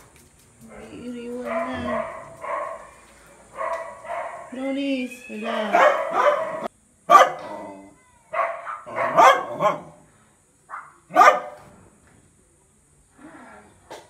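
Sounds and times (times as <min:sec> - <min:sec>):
dog barking: 0:01.4 - 0:04.6, 0:05.7 - 0:07.6, 0:08.3 - 0:10.0, 0:10.7 - 0:11.7.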